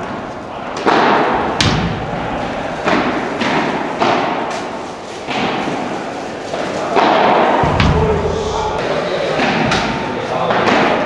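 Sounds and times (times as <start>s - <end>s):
padel ball pops echoing in hall: 0.8s - 4.6s, 7.0s - 8.4s.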